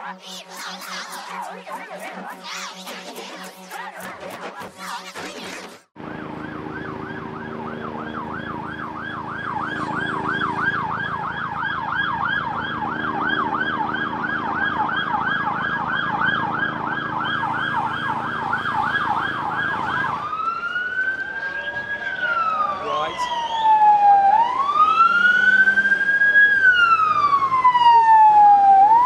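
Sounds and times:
emergency siren yelping: 6.0 - 29.0
low traffic hum: 6.0 - 29.0.

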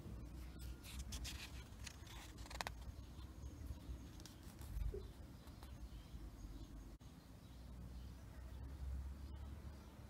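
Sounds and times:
paper pages rustling: 0.6 - 3.0.

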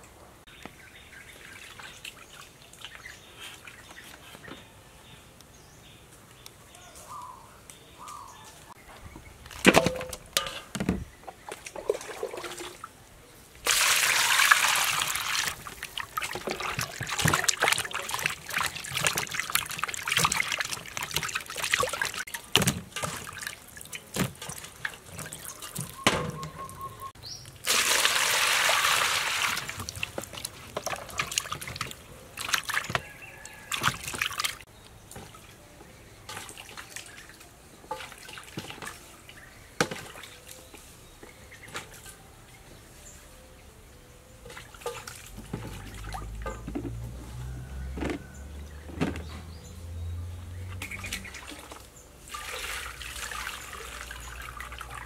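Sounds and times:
water sloshing and splashing: 9.0 - 13.0, 13.6 - 42.2, 44.3 - 55.0
water pouring from scoop: 11.8 - 12.9, 13.6 - 26.0, 27.6 - 33.0, 51.2 - 55.0.

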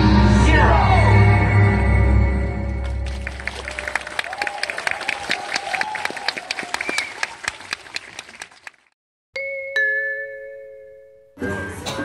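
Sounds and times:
film music: 0.0 - 4.2
audience clapping: 2.8 - 9.0.

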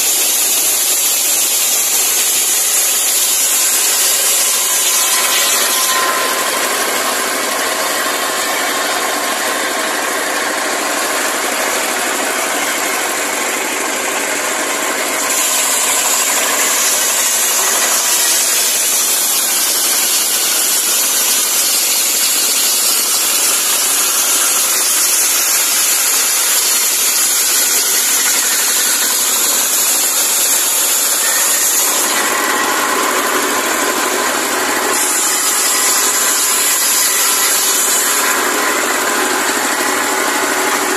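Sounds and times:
circular saw cutting logs: 0.0 - 40.9
diesel engine running: 6.2 - 17.5, 38.0 - 40.9.

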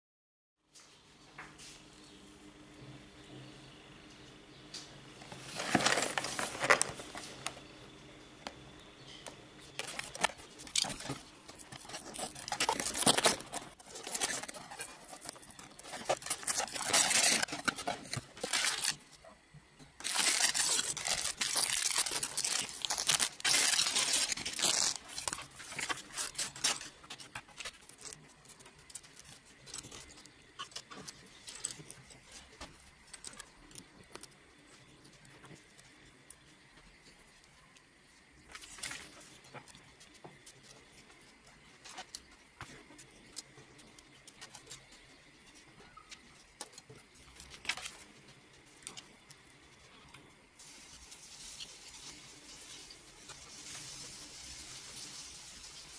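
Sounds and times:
cardboard packaging being opened: 5.2 - 7.7, 9.7 - 19.3, 20.0 - 33.5
plastic bags tearing and crinkling: 5.3 - 7.6, 9.8 - 19.2, 20.0 - 32.4, 47.4 - 48.0
plastic pieces clicking and rattling: 9.8 - 19.0, 20.0 - 32.0.

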